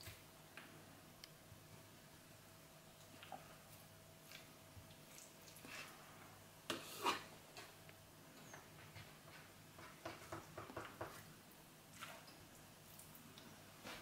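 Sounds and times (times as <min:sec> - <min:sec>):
knife tapping and scraping board: 0:08.9 - 0:11.2.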